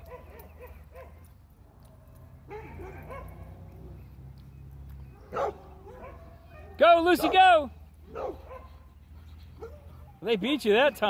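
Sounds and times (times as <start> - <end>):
dogs barking and yipping faintly: 0.0 - 11.0
loud sharp dog bark: 2.5 - 3.5, 5.3 - 7.4, 8.1 - 8.8.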